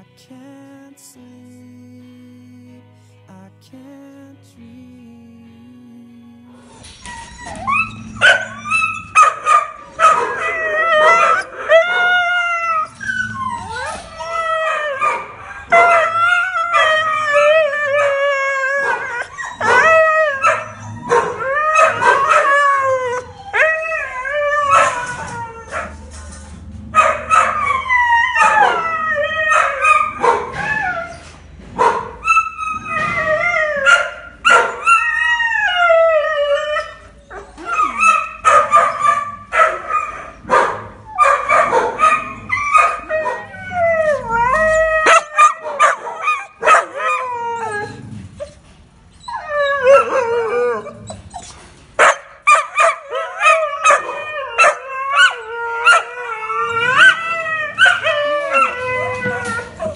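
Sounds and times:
dogs howling and whining: 0:06.6 - 0:59.9
dogs barking and yipping: 0:06.8 - 0:59.9.

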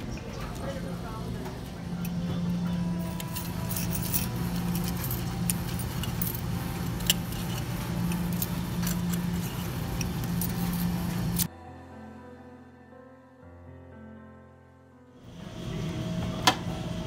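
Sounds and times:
low machine hum: 0:00.0 - 0:11.5, 0:15.2 - 0:17.0
coins clinking in metal tray: 0:03.0 - 0:11.5.

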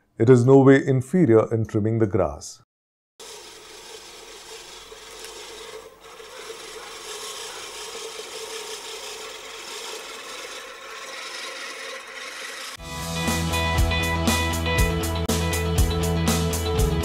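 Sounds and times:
push reel mower cutting grass: 0:03.2 - 0:12.8.

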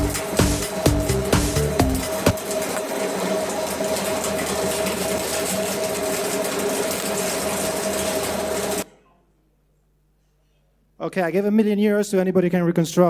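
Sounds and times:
shredder crunching: 0:00.0 - 0:08.8
shredder hum: 0:00.0 - 0:08.9.

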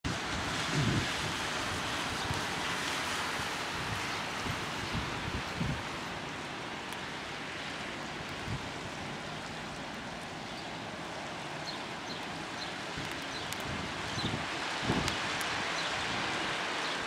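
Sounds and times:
wind buffeting the microphone: 0:00.1 - 0:06.1, 0:08.3 - 0:09.2, 0:11.5 - 0:17.0.

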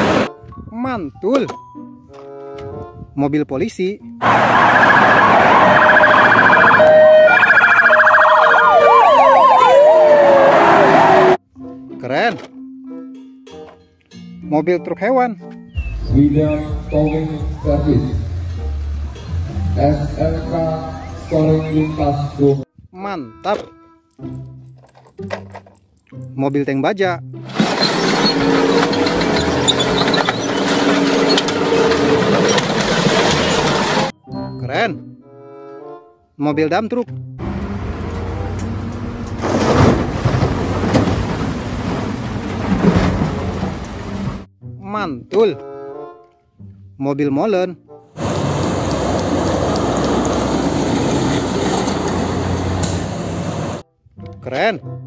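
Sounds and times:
tank engine drone: 0:04.2 - 0:11.4, 0:27.5 - 0:34.1, 0:37.4 - 0:44.5, 0:48.2 - 0:53.8
traffic noise: 0:04.2 - 0:11.4, 0:16.4 - 0:22.6, 0:27.5 - 0:34.1, 0:37.4 - 0:44.5, 0:48.2 - 0:53.8
wailing siren: 0:04.2 - 0:11.4
yelp siren: 0:04.2 - 0:11.4
metal clanking and crunching: 0:27.5 - 0:34.1, 0:39.2 - 0:44.4.

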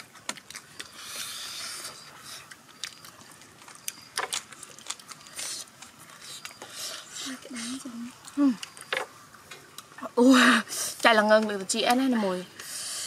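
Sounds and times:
crunchy vegetable chewing: 0:00.0 - 0:10.0.

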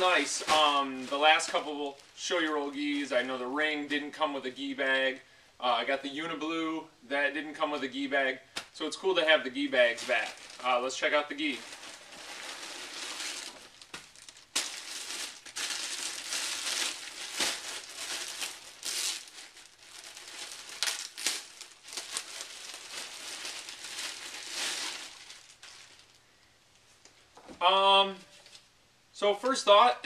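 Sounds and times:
plastic bag crinkling: 0:00.0 - 0:03.2, 0:09.8 - 0:26.4.

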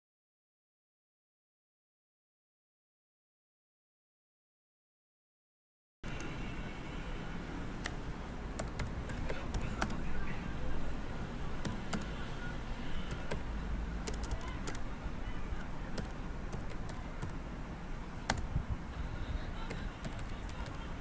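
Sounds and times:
low background hum: 0:06.0 - 0:21.0
keyboard keys clicking: 0:08.6 - 0:10.0, 0:11.6 - 0:12.1, 0:13.1 - 0:13.4, 0:14.0 - 0:14.9, 0:15.6 - 0:17.4, 0:18.3 - 0:18.5, 0:19.7 - 0:20.8.

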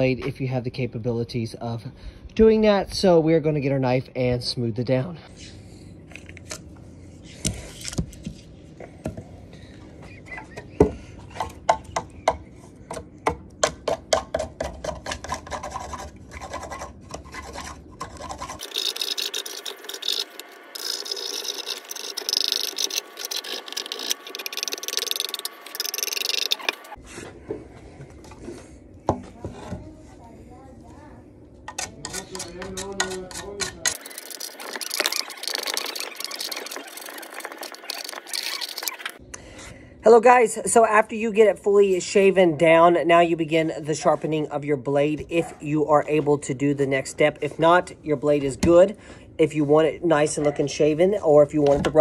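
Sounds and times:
knife scraping wood: 0:14.9 - 0:27.0, 0:32.1 - 0:39.2.

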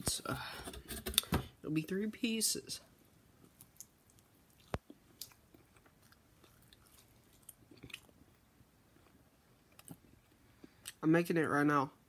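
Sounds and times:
chewing pizza: 0:03.4 - 0:08.4.

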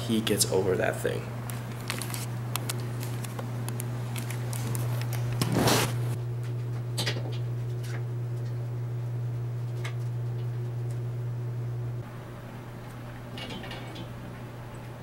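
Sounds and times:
steady low hum: 0:00.0 - 0:15.0
camera scraping on floor: 0:04.2 - 0:06.1.

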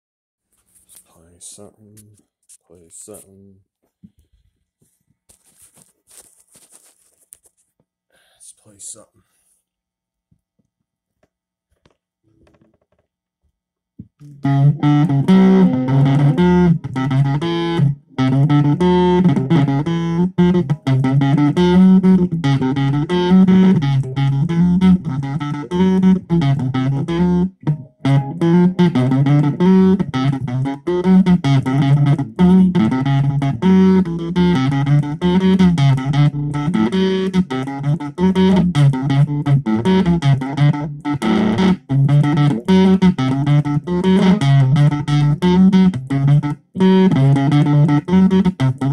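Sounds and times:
distorted electric guitar riff: 0:14.2 - 0:48.9.

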